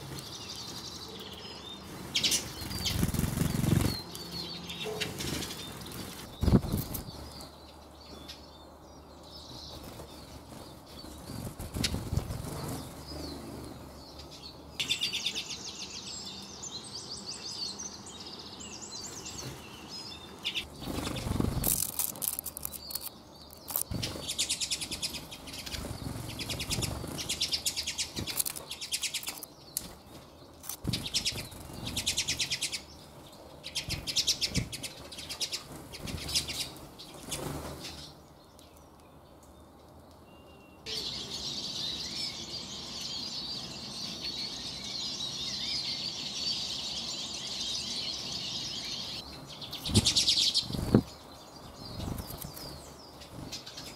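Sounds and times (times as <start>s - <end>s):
birds twittering: 0.0s - 53.9s
whirring bird wingbeats: 2.0s - 4.1s, 9.7s - 13.9s, 20.7s - 32.6s.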